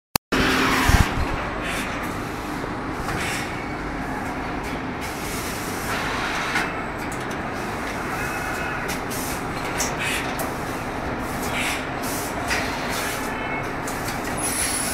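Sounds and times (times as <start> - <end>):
pneumatic air hisses: 5.1 - 6.7, 9.1 - 13.3, 14.4 - 14.9.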